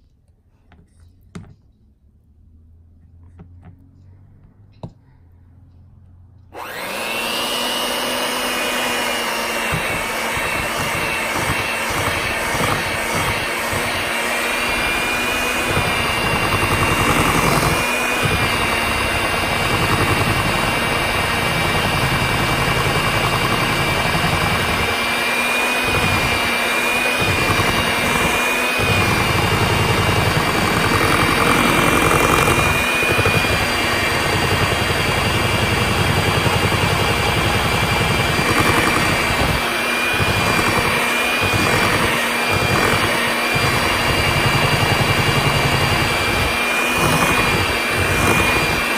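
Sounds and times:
electric hand mixer whining: 6.5s - 48.9s.

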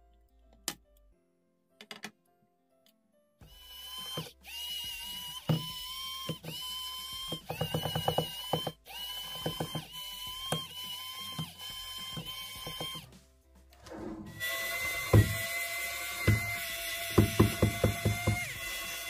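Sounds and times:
electric screwdriver whirring: 3.5s - 13.1s, 14.4s - 19.0s.

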